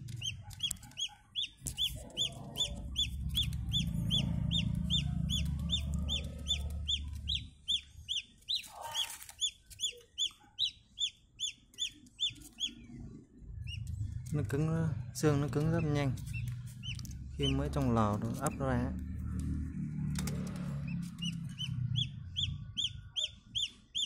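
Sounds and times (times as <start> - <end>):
chicks peeping: 0.0 - 24.0
low rumble: 2.0 - 8.1, 12.8 - 23.2.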